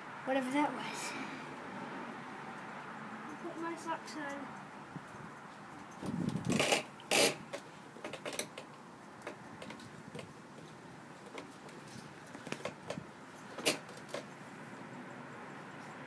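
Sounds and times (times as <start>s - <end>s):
light clicks and scuffs: 8.7s - 14.4s.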